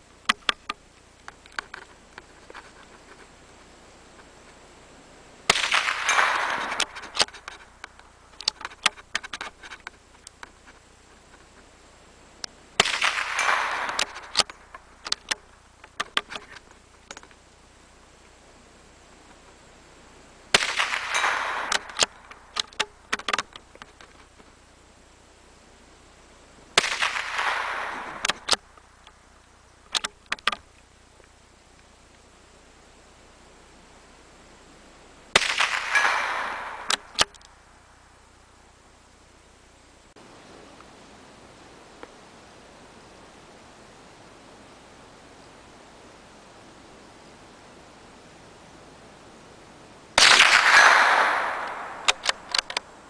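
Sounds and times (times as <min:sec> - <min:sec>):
rifle shots: 0:05.5 - 0:07.6, 0:12.8 - 0:15.3, 0:20.5 - 0:23.5, 0:26.8 - 0:28.6, 0:35.3 - 0:37.4, 0:50.2 - 0:52.9
rifle bolt metallic clicks: 0:35.4 - 0:37.5, 0:50.2 - 0:52.9.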